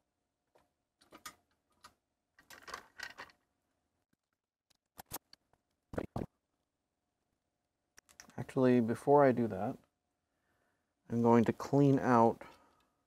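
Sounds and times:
small tools clicking and rustling: 1.0s - 3.5s.

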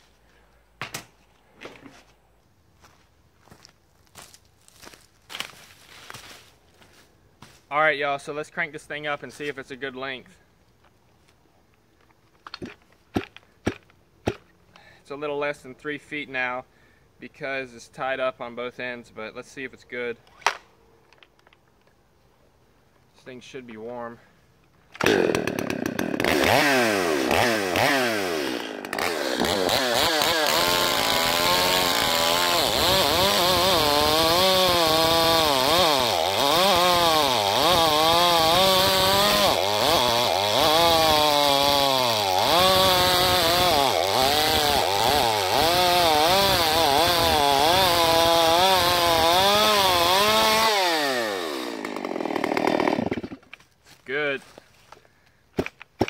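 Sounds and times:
chainsaw pull-start cord: 24.9s - 53.6s
chainsaw revving cutting log: 25.0s - 53.4s.

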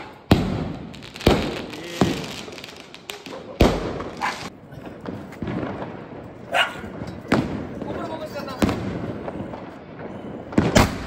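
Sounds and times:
firecrackers banging: 0.0s - 11.0s.

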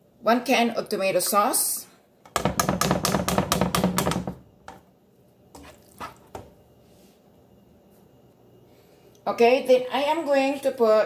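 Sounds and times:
plastic spoon knocking pan: 2.3s - 4.4s.

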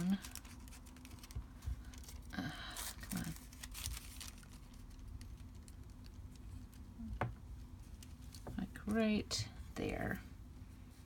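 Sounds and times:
paper rustling: 0.0s - 6.9s.

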